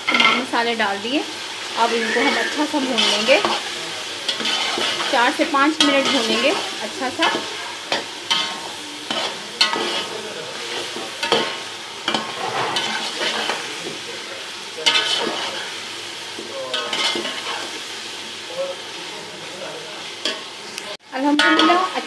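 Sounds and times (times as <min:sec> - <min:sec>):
spoon scraping a pan: 0:00.0 - 0:00.5, 0:01.8 - 0:14.0, 0:14.8 - 0:15.8, 0:16.4 - 0:17.8, 0:21.4 - 0:22.0
food sizzling in a pan: 0:00.0 - 0:22.0.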